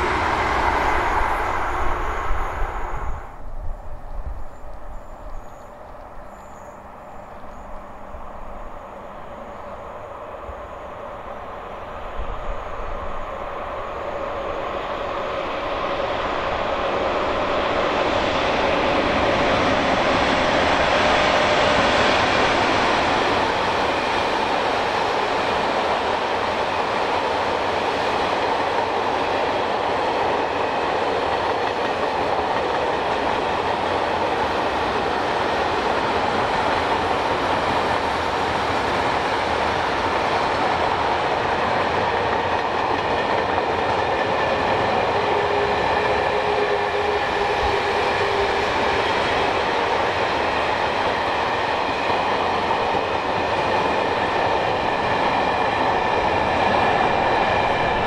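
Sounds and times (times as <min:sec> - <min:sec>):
steel wheels rolling on rail: 0:00.0 - 0:58.0.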